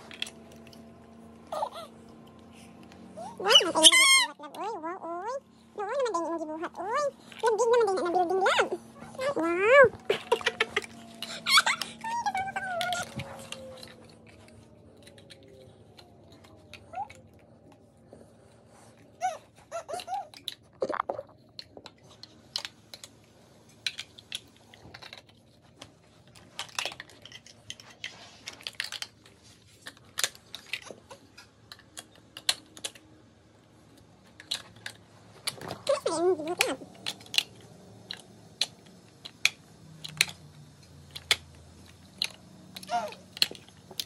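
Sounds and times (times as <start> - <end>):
plastic blocks clicking: 0.1 - 0.8, 21.5 - 33.1, 33.9 - 44.0.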